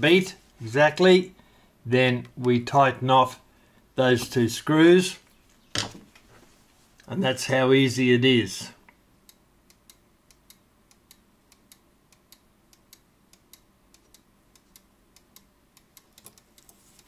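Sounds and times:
clock ticking: 9.3 - 17.0.

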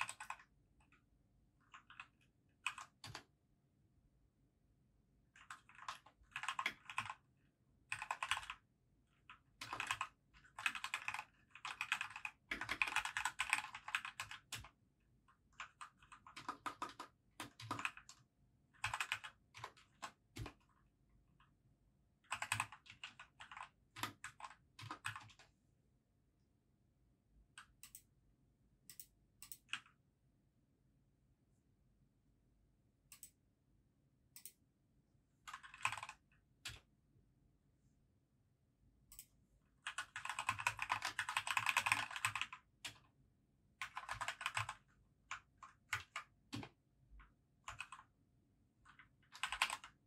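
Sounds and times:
mechanical keyboard typing: 0.0 - 0.5, 1.6 - 3.3, 5.4 - 7.3, 7.9 - 14.8, 15.4 - 20.7, 22.2 - 25.5, 35.5 - 36.9, 39.1 - 43.0, 43.8 - 46.8, 47.7 - 48.1, 48.9 - 50.0.

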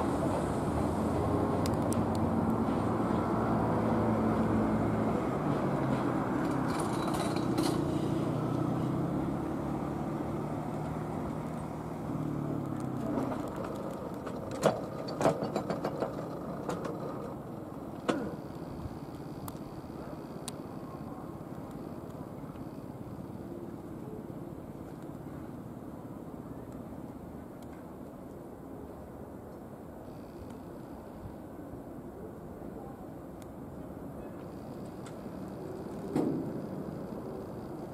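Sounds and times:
electric train humming: 0.0 - 24.6
train wheels clanking over points: 13.0 - 18.5.

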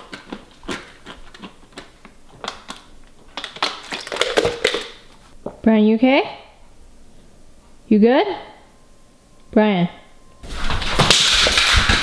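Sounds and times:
plastic items clicking: 1.4 - 5.0.

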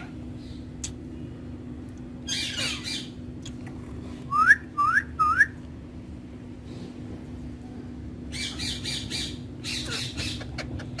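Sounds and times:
steady low hum: 0.0 - 11.0
parakeets squawking: 2.2 - 3.2, 8.3 - 11.0.

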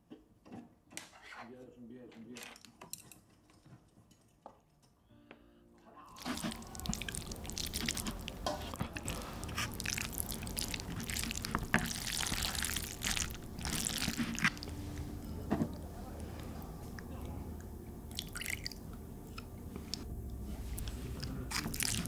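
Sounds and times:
chopsticks squishing sticky noodles: 6.1 - 17.3, 18.1 - 22.0.

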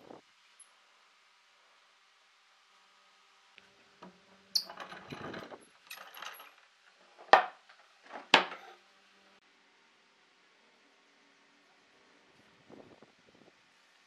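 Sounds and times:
metal and wood clattering: 4.6 - 8.8
metal clamps rattling: 4.6 - 8.8.

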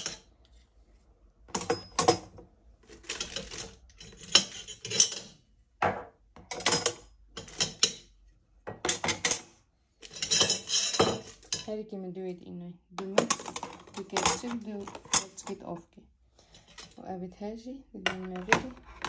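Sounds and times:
cutlery clinking in drawer: 0.0 - 0.3, 1.5 - 5.4, 6.4 - 8.2, 8.8 - 11.7, 13.1 - 15.7.

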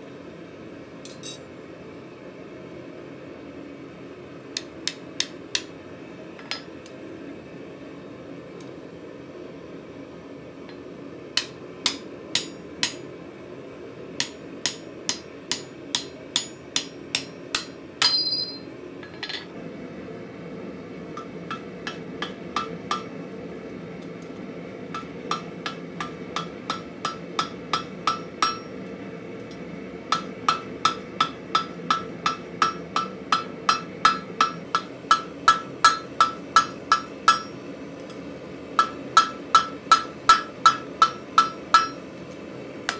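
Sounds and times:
hammer striking steel on anvil: 1.1 - 1.4, 11.4 - 13.1, 14.2 - 19.5, 21.2 - 23.1, 24.9 - 28.8, 30.1 - 37.6, 38.8 - 42.0
anvil ringing: 18.0 - 19.4.

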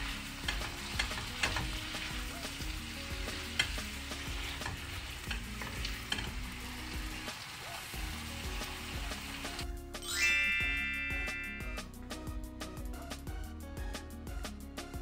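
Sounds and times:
food sizzling in a wok: 0.0 - 12.0
spatula scraping and tapping pan: 0.4 - 2.2, 3.3 - 6.4.

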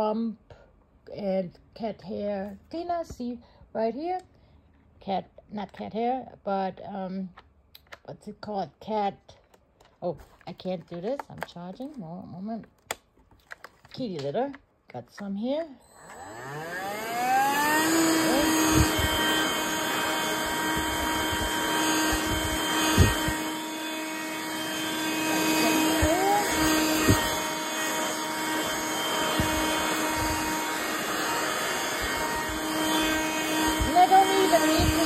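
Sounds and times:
handheld vacuum whining: 15.2 - 35.0.

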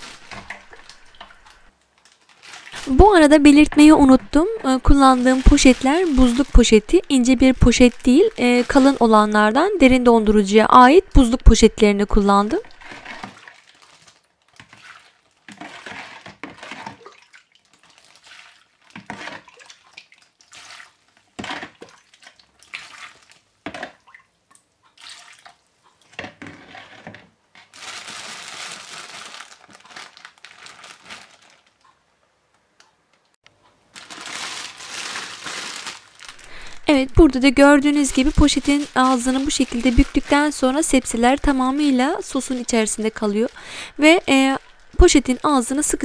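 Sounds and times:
plastic bag rustling and crinkling: 0.0 - 19.5, 26.3 - 32.0, 33.7 - 46.0
brine sloshing: 3.7 - 9.4, 12.6 - 24.1, 34.0 - 45.1.

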